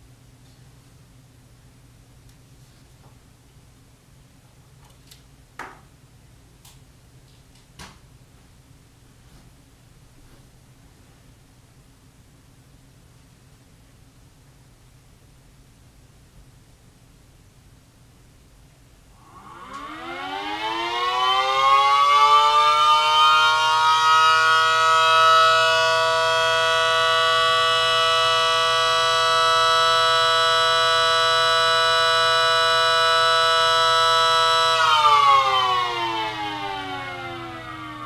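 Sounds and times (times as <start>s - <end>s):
siren winding up and down: 19.2s - 38.0s.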